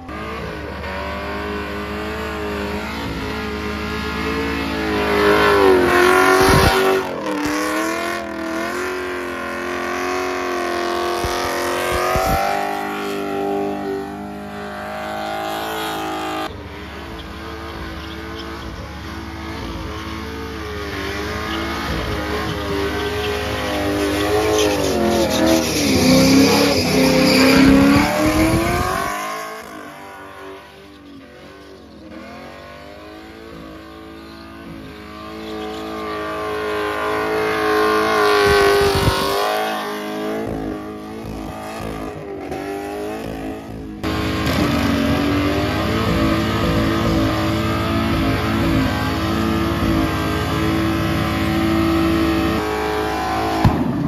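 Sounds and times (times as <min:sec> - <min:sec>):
car engine revving high: 0:00.0 - 0:54.0
tyres spinning on bitumen: 0:11.2 - 0:29.6.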